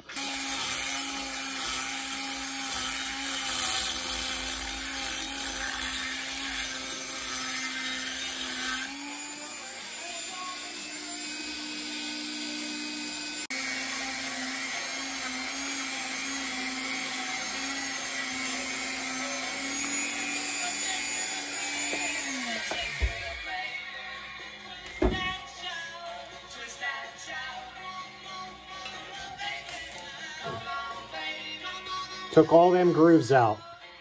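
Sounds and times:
rotary tool high whine: 0.0 - 23.7
bit grinding metal: 0.1 - 23.6.

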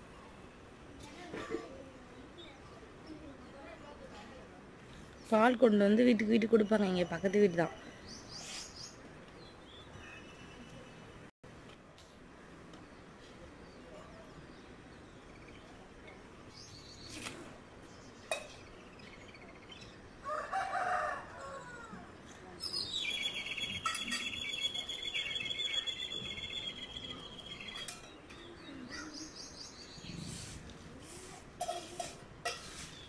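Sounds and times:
rooster crowing: 20.2 - 22.1.

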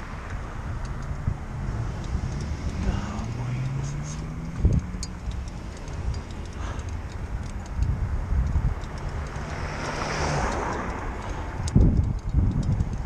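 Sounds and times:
bicycle road rumble: 0.0 - 13.0
motor vehicle passing: 0.0 - 13.0
wind buffeting microphone: 0.0 - 13.0
bicycle jolts: 5.2 - 7.8.

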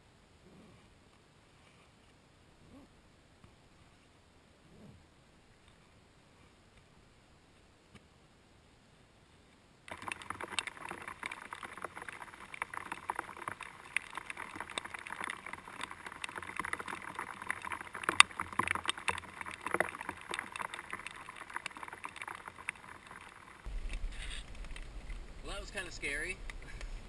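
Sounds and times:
rain pattering on a tent: 9.9 - 27.0.

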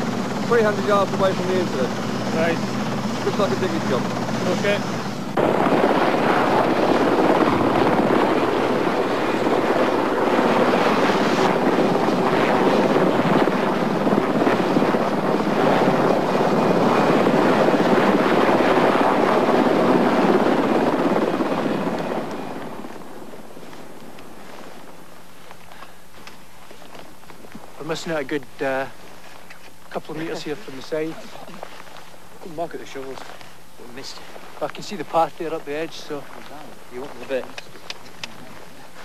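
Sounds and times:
wind buffeting microphone: 0.0 - 23.6
helicopter rotor and engine noise: 0.0 - 39.0.

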